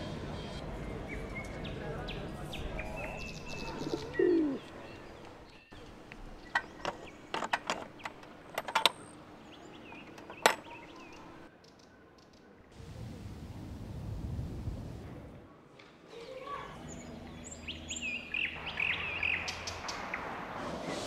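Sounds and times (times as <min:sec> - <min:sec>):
birds chirping: 0:00.0 - 0:12.6, 0:16.2 - 0:20.4.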